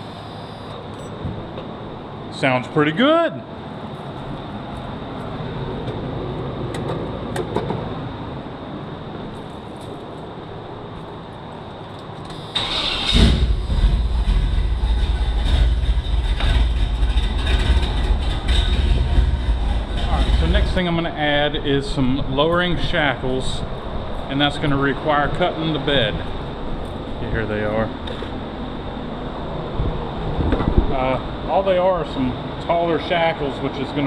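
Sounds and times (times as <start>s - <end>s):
pickup engine running: 12.6s - 21.1s.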